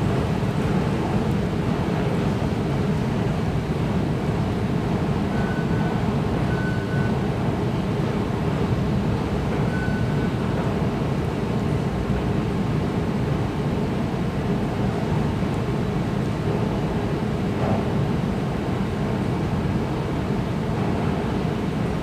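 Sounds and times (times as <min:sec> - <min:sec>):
faint high beeps: 0:09.7 - 0:10.3.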